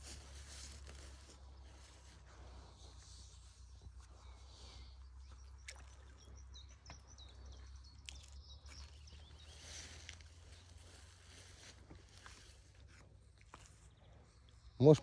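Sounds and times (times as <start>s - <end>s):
bird chirping: 3.4s - 11.4s, 13.5s - 15.0s.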